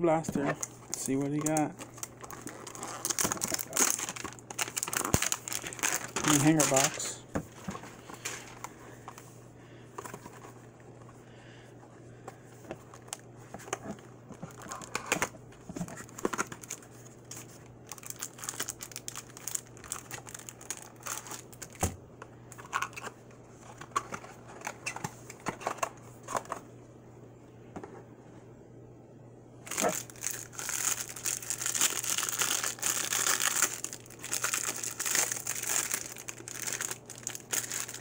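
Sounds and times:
wrapper crinkling: 0:00.6 - 0:08.7, 0:15.9 - 0:21.8, 0:29.6 - 0:38.0.

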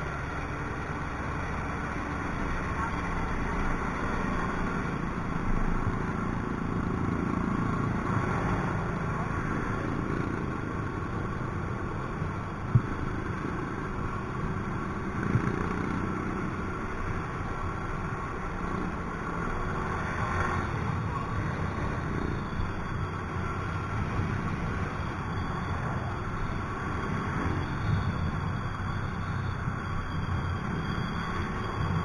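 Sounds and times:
wind and road rumble: 0:00.0 - 0:32.0.

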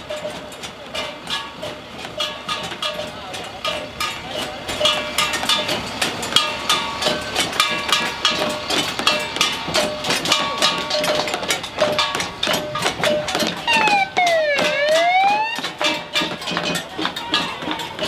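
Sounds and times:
rapid metallic clanking strikes: 0:00.0 - 0:18.0
two-tone siren: 0:13.7 - 0:15.7.

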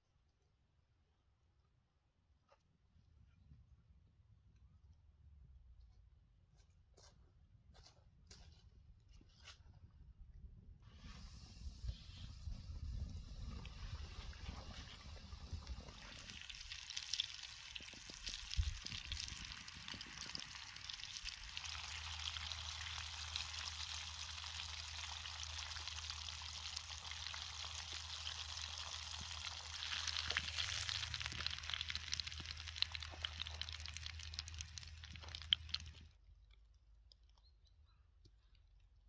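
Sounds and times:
oil sizzling and bubbling: 0:11.1 - 0:36.1.

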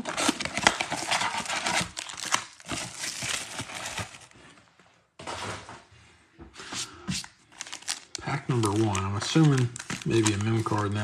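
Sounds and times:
plastic wrap crinkling: 0:00.0 - 0:04.5, 0:07.2 - 0:11.0.

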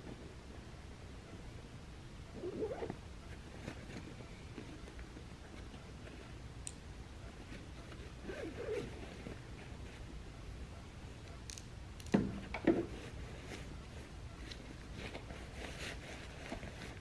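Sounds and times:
zipper being pulled: 0:02.4 - 0:03.0, 0:08.2 - 0:09.0.

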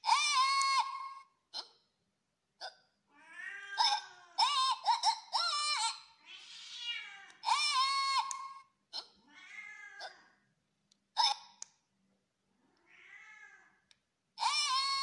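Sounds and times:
cat meowing: 0:03.1 - 0:04.6, 0:05.8 - 0:08.6, 0:09.2 - 0:10.4, 0:12.7 - 0:13.8.

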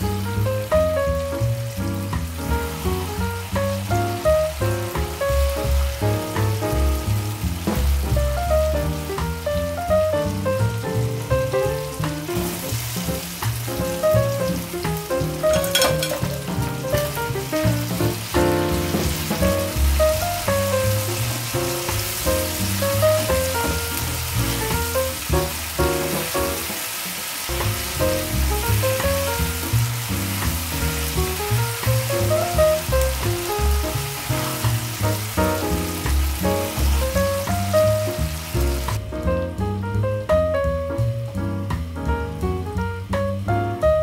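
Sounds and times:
background music: 0:00.0 - 0:26.7, 0:27.5 - 0:44.0
sauce sizzling in a frying pan: 0:00.0 - 0:44.0
utensil clatter: 0:15.4 - 0:17.2.

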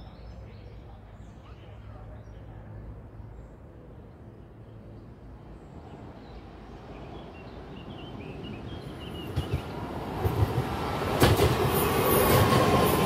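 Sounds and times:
train rumbling on rails: 0:04.0 - 0:13.0
birds chirping: 0:04.8 - 0:11.1.

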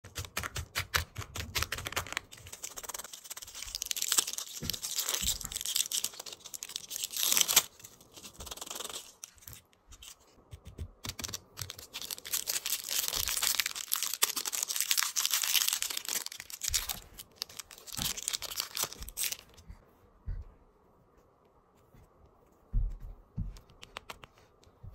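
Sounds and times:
plastic wrappers crinkling: 0:01.6 - 0:10.2, 0:11.1 - 0:19.6.

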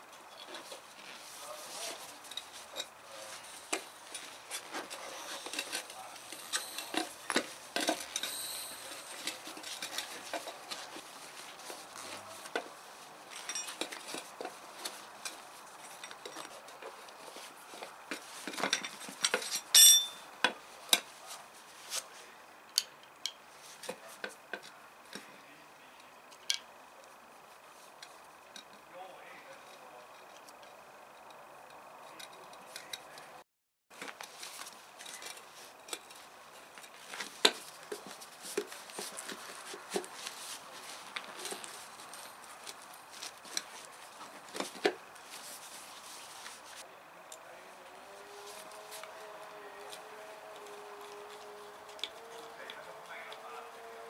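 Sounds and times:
clicks and metal clinks: 0:05.4 - 0:10.8, 0:13.3 - 0:17.0, 0:18.5 - 0:20.3.

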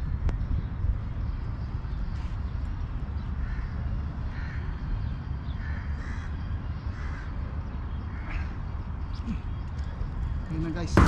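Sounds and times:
steady low rumble: 0:00.0 - 0:11.0
crows cawing: 0:03.4 - 0:04.9, 0:05.5 - 0:09.4.

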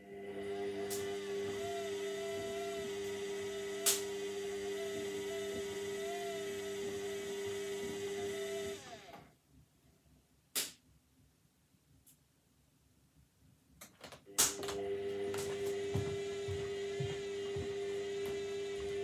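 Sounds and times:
washing machine whining: 0:00.0 - 0:09.3, 0:14.2 - 0:19.0.

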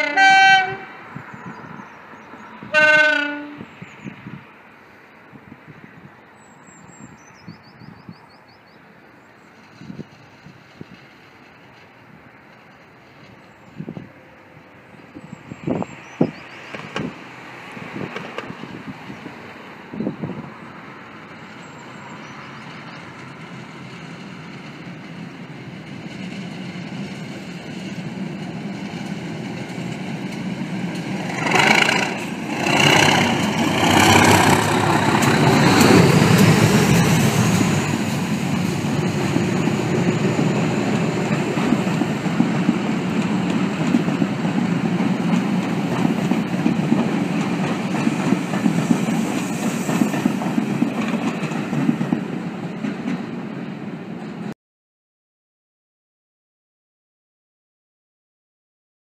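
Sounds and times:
train horn warning blasts: 0:00.0 - 0:01.0, 0:02.7 - 0:03.6, 0:31.4 - 0:33.4
diesel locomotive engine: 0:00.0 - 0:54.5.

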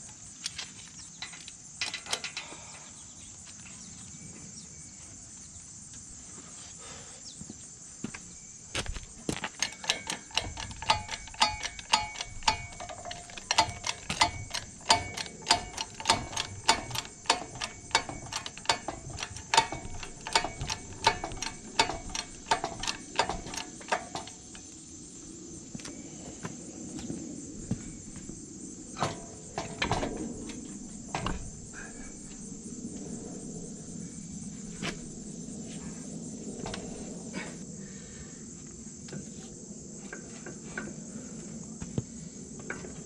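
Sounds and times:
metal ratchet clicking: 0:09.6 - 0:24.6.

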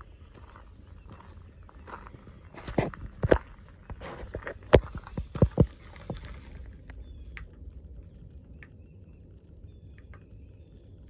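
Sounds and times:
bird chirps: 0:00.0 - 0:02.9, 0:05.5 - 0:11.0
footsteps on gravel: 0:00.0 - 0:07.0
steady low rumble: 0:00.0 - 0:11.0.

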